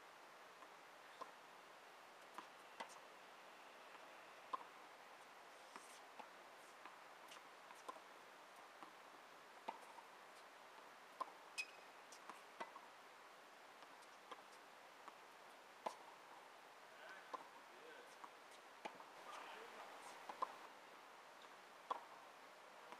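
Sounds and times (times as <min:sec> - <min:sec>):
tennis ball bounces: 0:03.9 - 0:04.7, 0:15.8 - 0:16.2, 0:17.0 - 0:20.7, 0:21.4 - 0:22.2.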